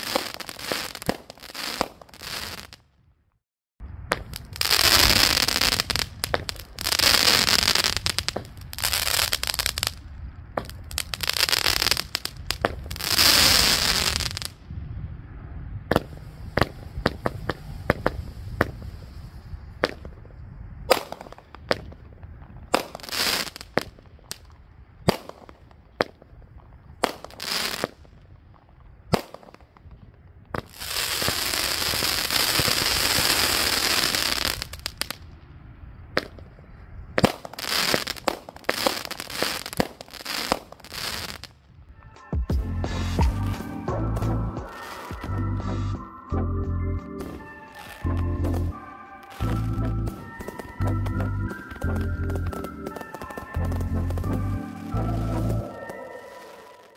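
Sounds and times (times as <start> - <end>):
firework crackling: 0.0 - 2.8, 4.1 - 14.6, 15.9 - 20.3, 20.9 - 35.4, 36.0 - 41.6, 42.9 - 45.8, 47.2 - 56.9
sharp firework pops: 0.0 - 2.8, 4.1 - 10.0, 10.6 - 14.6, 15.9 - 19.0, 19.8 - 35.3, 36.1 - 36.6, 37.2 - 41.5.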